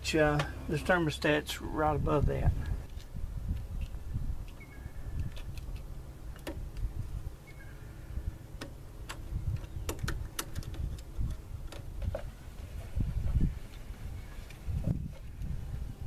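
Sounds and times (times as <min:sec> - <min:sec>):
hands clicking and tapping hoses: 0:08.6 - 0:12.3.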